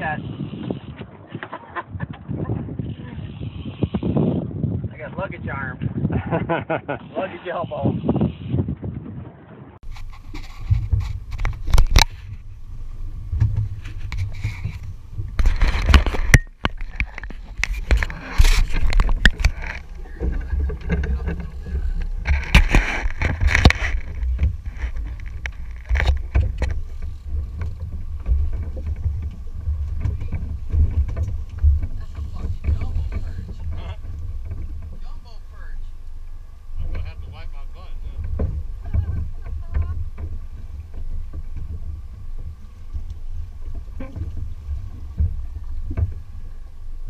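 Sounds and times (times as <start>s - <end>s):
water slapping boat hull: 0.0s - 47.0s
wind rumbling on microphone: 0.0s - 47.0s
dull knocks: 38.2s - 46.4s.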